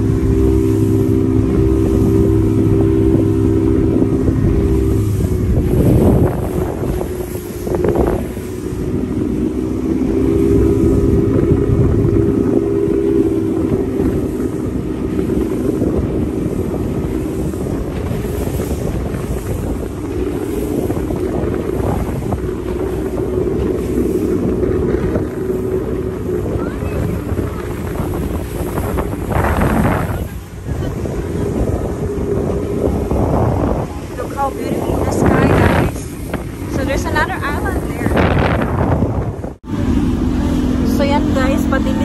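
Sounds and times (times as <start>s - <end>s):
motorboat engine running: 0.0s - 42.0s
wind buffeting microphone: 0.0s - 42.0s.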